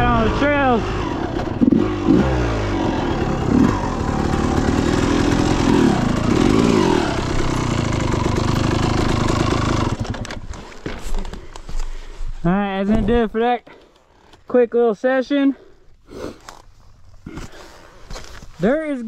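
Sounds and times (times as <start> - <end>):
dirt bike engine revving: 0.0 - 10.7.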